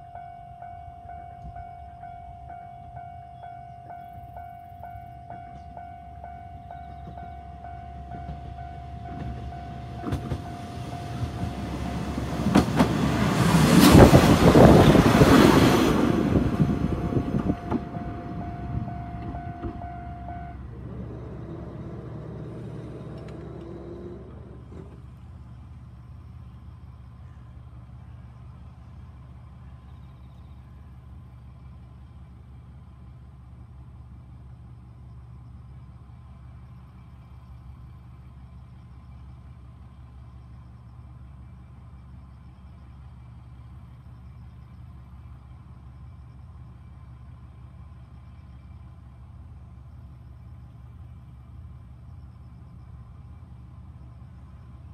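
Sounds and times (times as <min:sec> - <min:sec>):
level crossing warning tone: 0:00.0 - 0:12.6, 0:16.0 - 0:22.0
low engine rumble: 0:00.0 - 0:54.9.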